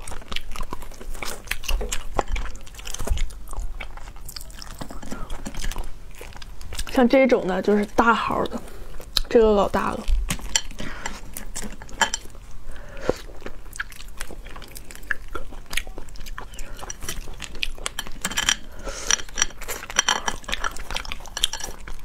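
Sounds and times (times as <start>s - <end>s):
chewing: 0.0s - 22.0s.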